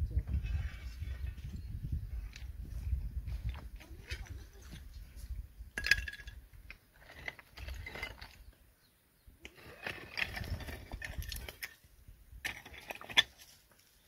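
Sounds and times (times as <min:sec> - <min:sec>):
footsteps on stones and dry grass: 0:00.2 - 0:08.6, 0:09.6 - 0:14.0.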